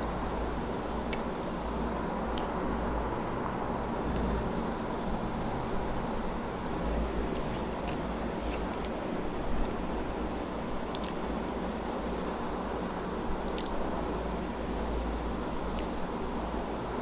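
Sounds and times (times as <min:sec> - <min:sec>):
background hiss and low hum: 0:00.0 - 0:17.0
faint wet eating clicks: 0:13.1 - 0:13.8.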